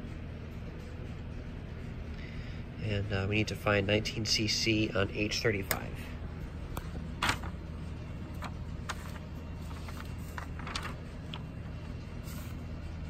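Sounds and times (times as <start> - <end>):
low hum: 0.0 - 13.0
paper rustling and crinkling: 6.8 - 7.6, 8.2 - 12.7.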